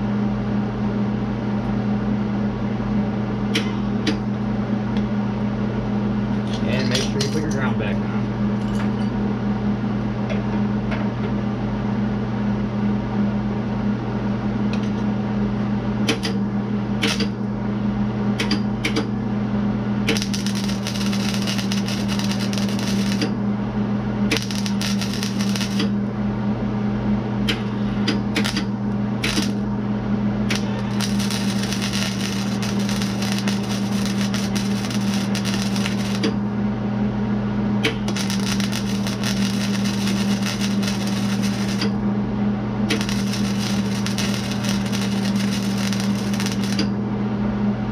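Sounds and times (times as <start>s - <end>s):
electrical hum: 0.0s - 47.9s
welding arc crackling and sizzling: 17.0s - 17.4s, 20.0s - 23.4s, 24.2s - 25.9s, 28.3s - 29.7s, 30.5s - 36.4s, 37.8s - 42.0s, 42.8s - 46.9s.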